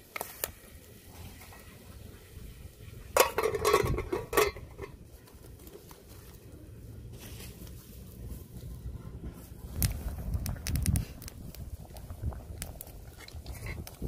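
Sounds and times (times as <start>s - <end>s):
wood fire crackling: 0.0s - 14.0s
metal pot lid clanking: 3.1s - 5.0s
low rumble: 6.6s - 14.0s.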